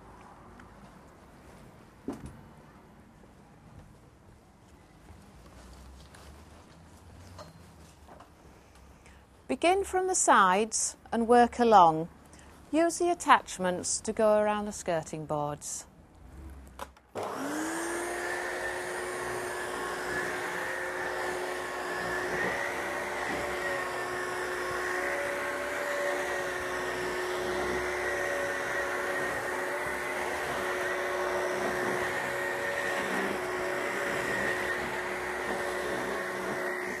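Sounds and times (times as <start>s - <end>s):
vacuum cleaner motor: 17.2s - 37.0s.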